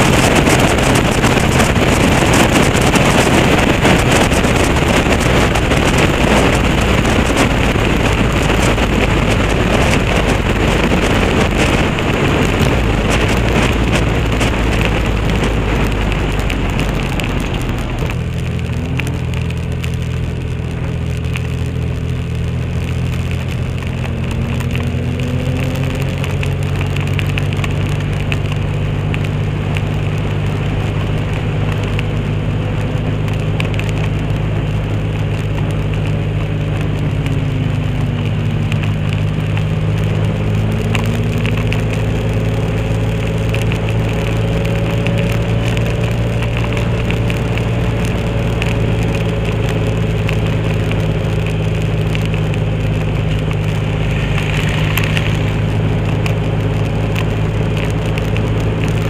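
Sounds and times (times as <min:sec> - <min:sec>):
cloth flag flapping in wind: 0:00.0 - 0:59.0
motorcycle engine running: 0:00.0 - 0:59.0
wind rush: 0:00.0 - 0:59.0.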